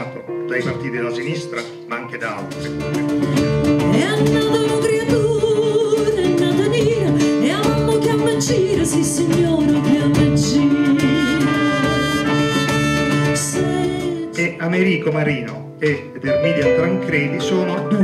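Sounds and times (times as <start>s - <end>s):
guitar: 0.0s - 18.0s
held instrumental tones: 0.0s - 18.0s.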